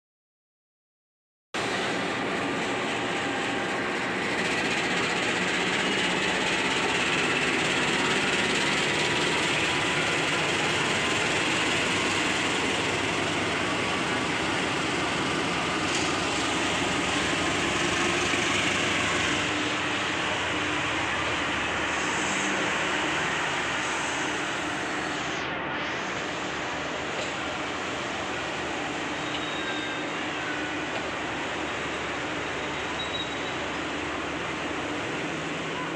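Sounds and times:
diesel locomotive hauling train: 0:01.6 - 0:35.9.

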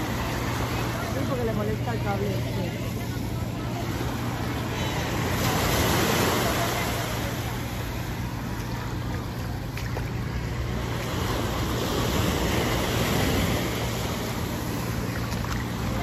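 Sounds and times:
sea surf on beach: 0:00.0 - 0:16.0.

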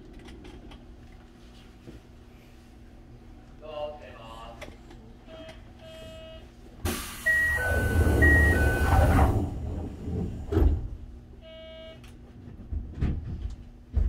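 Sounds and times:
pneumatic door air hiss: 0:06.8 - 0:09.6.

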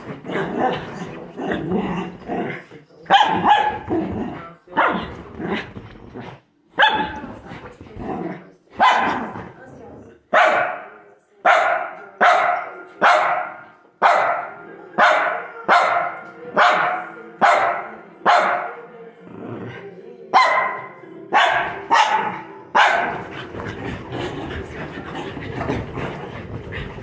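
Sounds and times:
small dog barking: 0:03.1 - 0:03.9, 0:06.8 - 0:07.2, 0:08.8 - 0:09.3, 0:20.4 - 0:23.2.

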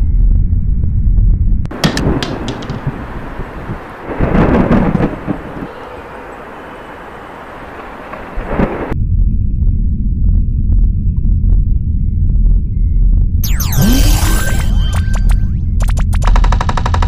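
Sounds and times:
thunder crack: 0:01.7 - 0:05.8
deep thunder rumble: 0:01.7 - 0:06.3, 0:07.7 - 0:09.3.

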